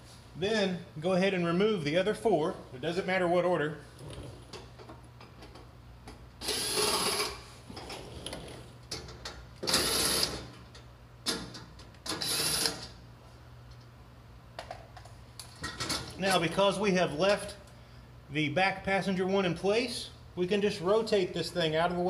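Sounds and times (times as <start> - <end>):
cordless drill whirring: 6.4 - 7.4.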